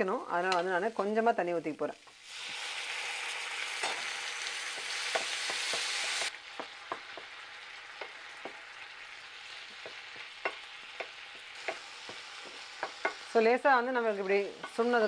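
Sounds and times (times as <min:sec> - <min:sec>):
water sizzling in hot pan: 0:00.0 - 0:15.0
wooden spatula stirring in pan: 0:04.7 - 0:13.4.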